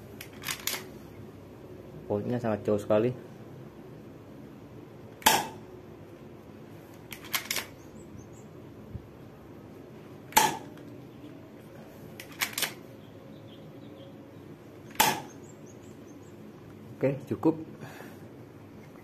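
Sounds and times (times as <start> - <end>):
airsoft pistol shot: 5.2 - 5.6, 10.3 - 10.7, 14.9 - 15.4
pistol slide clicks: 7.1 - 7.8, 12.2 - 12.8.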